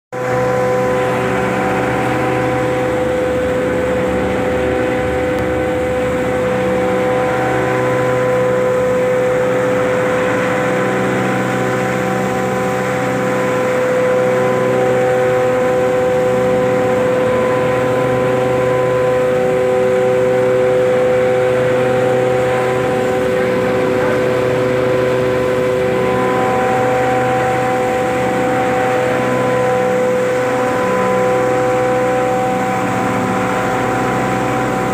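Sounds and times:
grinder machine whining drone: 0:00.1 - 0:34.9.

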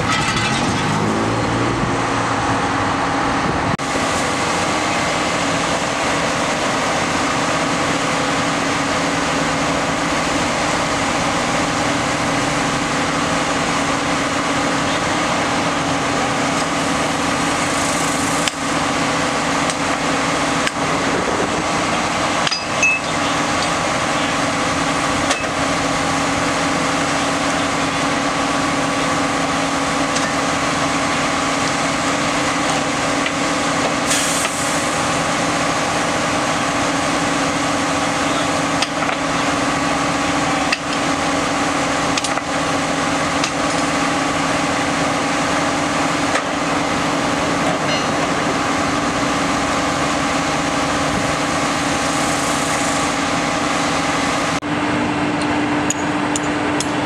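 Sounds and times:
machine droning hum: 0:06.6 - 0:31.7.

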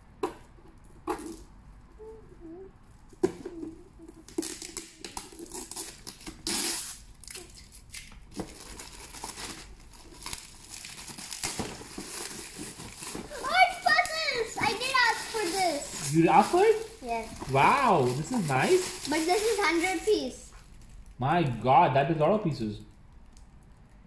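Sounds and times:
wrapping paper tearing and crinkling: 0:04.3 - 0:21.1.

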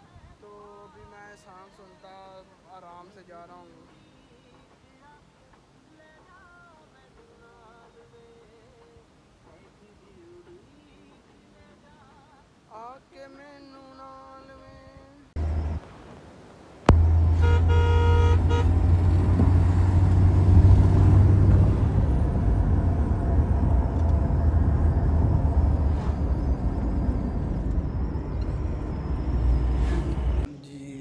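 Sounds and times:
car interior rumble: 0:15.4 - 0:15.9, 0:16.9 - 0:30.5
car horn tooting: 0:16.9 - 0:19.7.

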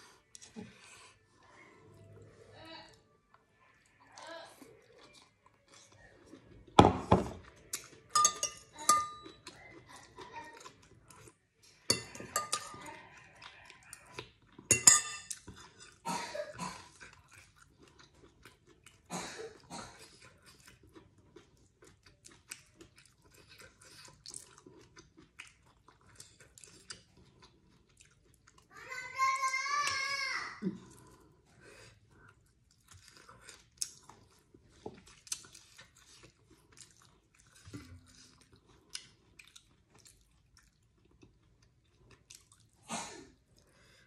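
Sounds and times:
chewing: 0:00.0 - 0:06.8, 0:07.4 - 0:28.7, 0:30.7 - 0:44.0
bowls knocking on tabletop: 0:06.8 - 0:07.4.

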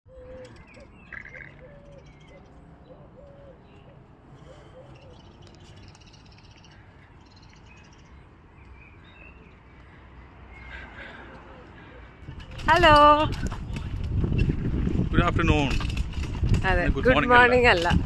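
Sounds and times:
low cooing bird call: 0:00.1 - 0:08.2
higher bird chirps: 0:00.1 - 0:11.0.

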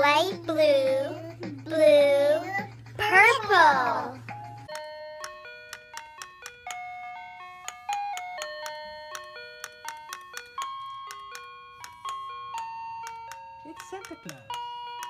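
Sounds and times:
toy playing chiming electronic tune: 0:04.2 - 0:15.0.

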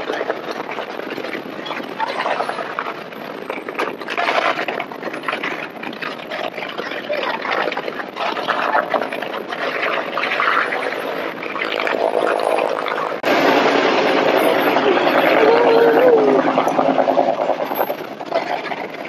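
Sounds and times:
wind on microphone: 0:00.0 - 0:19.0
heavy surf breaking: 0:08.0 - 0:18.9
crowd voices: 0:13.4 - 0:17.6.

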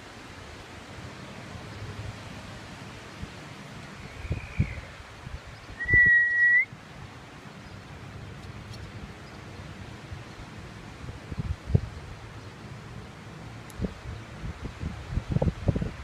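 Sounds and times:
wind noise: 0:02.0 - 0:07.0, 0:10.1 - 0:12.4, 0:13.5 - 0:16.0
person whistling: 0:05.8 - 0:06.7.

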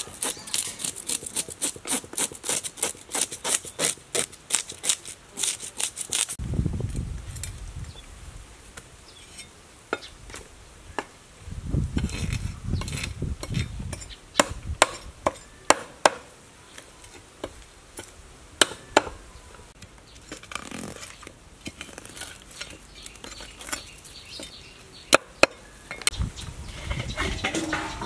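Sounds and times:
cleaver scraping fish scales: 0:00.0 - 0:06.4, 0:12.0 - 0:14.2, 0:20.2 - 0:24.6.

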